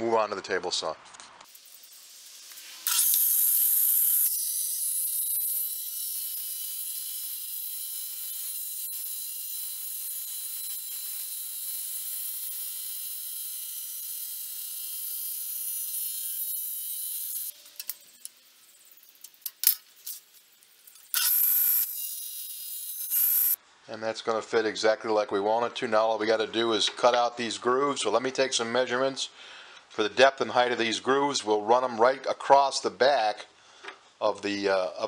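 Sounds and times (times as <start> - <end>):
table saw cutting wood: 1.5 - 17.6, 21.1 - 23.6.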